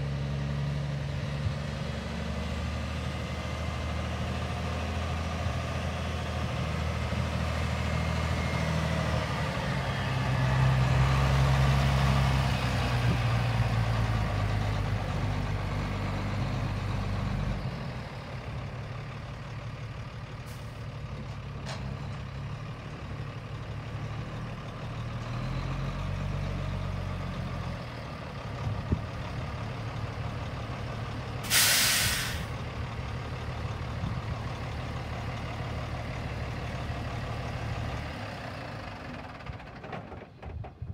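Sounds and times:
diesel truck engine running: 0.0 - 40.9
air brakes hissing: 31.4 - 32.6.

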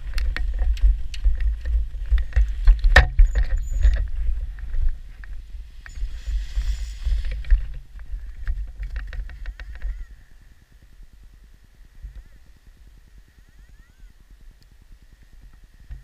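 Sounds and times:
wind buffeting microphone: 0.0 - 11.2.

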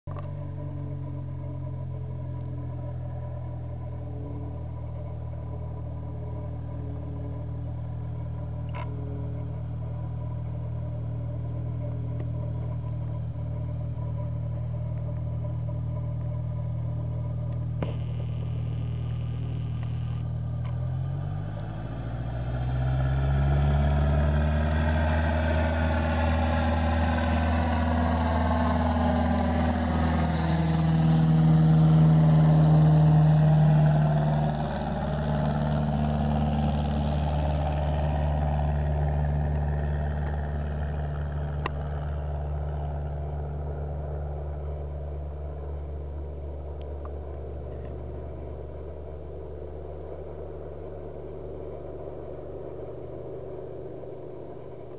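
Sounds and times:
propeller plane taking off: 0.1 - 54.9.

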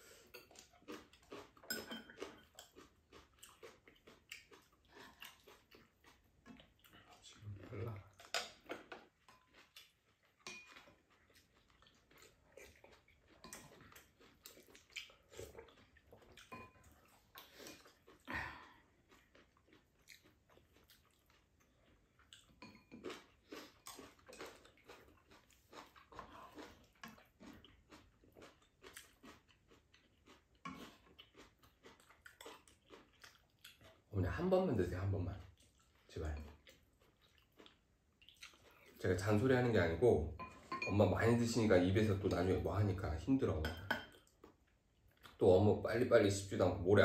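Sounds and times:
people chewing: 0.0 - 45.4
chopsticks and spoons clicking on bowls: 0.3 - 2.9, 8.2 - 11.1, 13.2 - 14.1, 16.4 - 17.0, 22.6 - 23.2, 40.4 - 41.3, 43.6 - 44.2.

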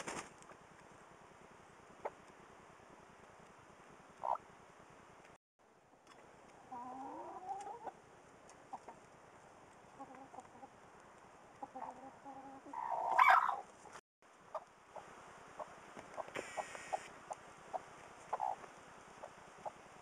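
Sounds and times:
hen chirping and clucking: 4.2 - 4.4, 11.6 - 13.7, 14.5 - 20.0.

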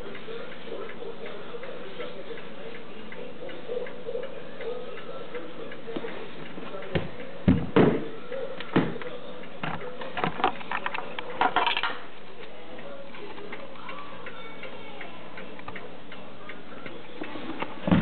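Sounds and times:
knocks and clunks of handling: 8.8 - 12.0.

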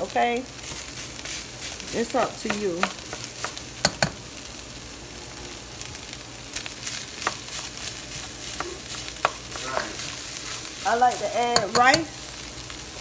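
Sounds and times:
meat and rice sizzling in pot: 0.0 - 13.0
spatula tapping metal pot: 2.2 - 4.2, 8.6 - 9.9, 11.5 - 12.1
spatula scraping pot: 6.8 - 12.2.

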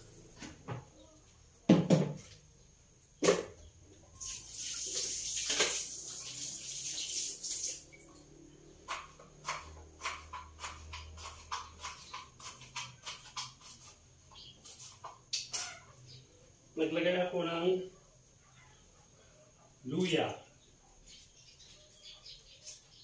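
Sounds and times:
knock: 1.7 - 2.3
water running: 4.2 - 8.4
knife chopping on cutting board: 8.9 - 13.8.

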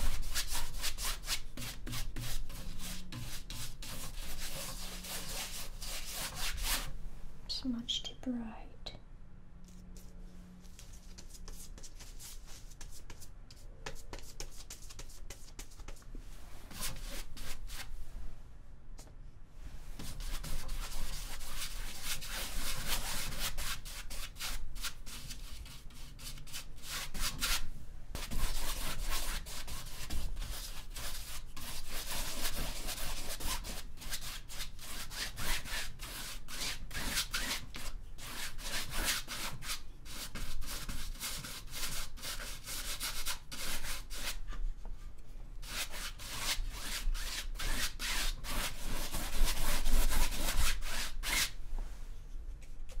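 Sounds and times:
paintbrush scrubbing canvas: 0.0 - 6.9, 9.7 - 17.9, 20.0 - 27.6, 28.2 - 44.5.

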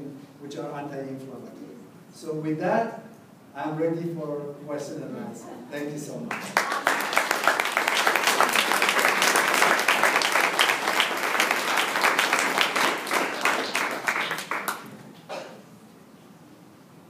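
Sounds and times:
audience applauding: 6.3 - 15.0.

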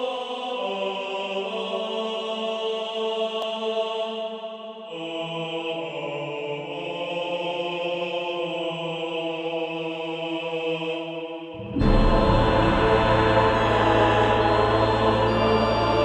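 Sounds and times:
chant-like drone chord: 3.8 - 16.0.

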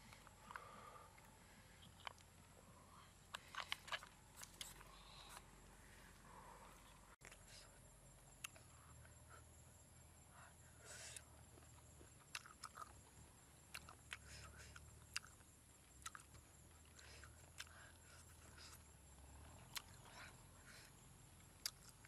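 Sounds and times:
person chewing with lip smacks: 3.3 - 5.4, 11.6 - 13.0, 13.7 - 18.8.

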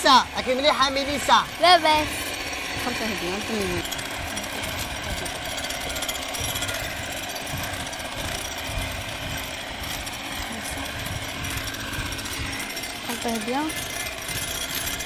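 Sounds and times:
electric hand mixer whisking: 0.0 - 15.0.

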